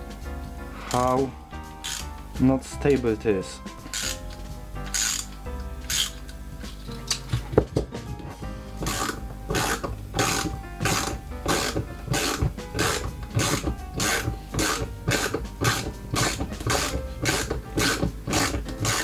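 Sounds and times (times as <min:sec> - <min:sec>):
background music: 0:00.0 - 0:19.0
ratchet wrench clicking: 0:01.8 - 0:02.1, 0:03.9 - 0:06.2, 0:08.8 - 0:19.0.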